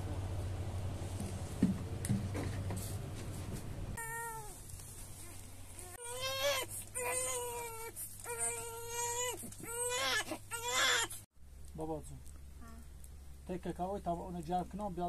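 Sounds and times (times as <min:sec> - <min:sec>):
rustling and handling noise: 0:00.8 - 0:15.0
young child crying: 0:04.0 - 0:04.6, 0:06.0 - 0:11.2.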